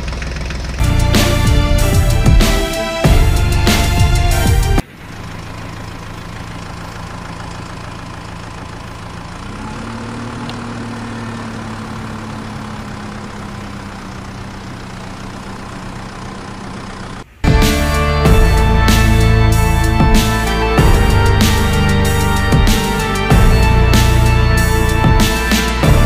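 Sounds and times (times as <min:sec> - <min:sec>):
engine idling: 0:00.0 - 0:26.0.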